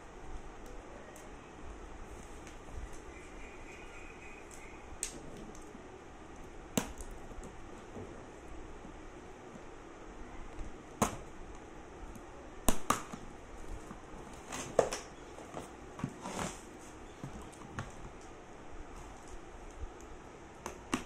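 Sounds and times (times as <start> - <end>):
cardboard scraping: 14.3 - 17.4.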